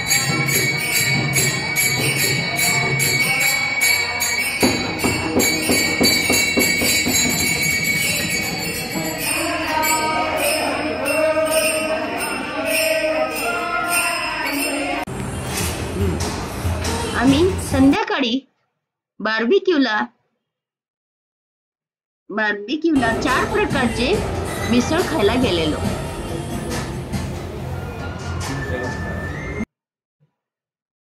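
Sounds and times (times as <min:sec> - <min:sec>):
hand cymbals clashing: 0:00.0 - 0:15.1
drum: 0:04.6 - 0:09.2.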